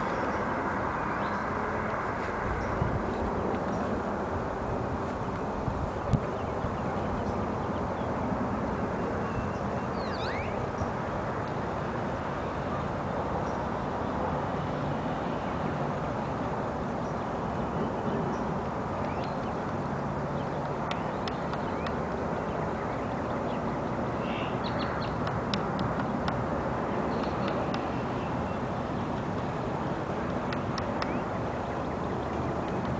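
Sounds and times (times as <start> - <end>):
steady background noise: 0.0 - 32.9
bird call: 9.2 - 10.6, 24.2 - 25.2
woodpecker tapping on wooden pole: 30.4 - 31.2.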